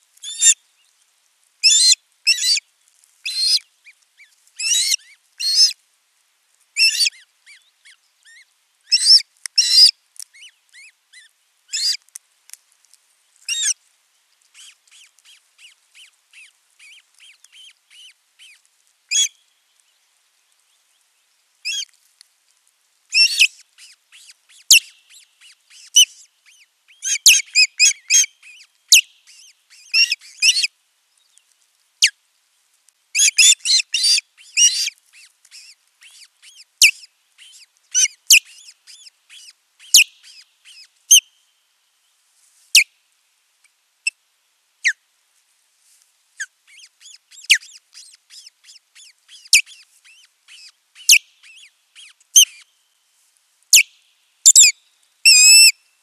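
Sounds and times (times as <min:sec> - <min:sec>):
quick bird peeps: 0:06.8 - 0:12.0, 0:14.5 - 0:19.3, 0:23.1 - 0:30.7, 0:33.2 - 0:41.2, 0:46.4 - 0:52.6, 0:54.5 - 0:55.7
birds whistled chirps: 0:23.2 - 0:30.7, 0:33.2 - 0:34.9, 0:35.6 - 0:41.3, 0:46.8 - 0:52.7, 0:54.5 - 0:55.8.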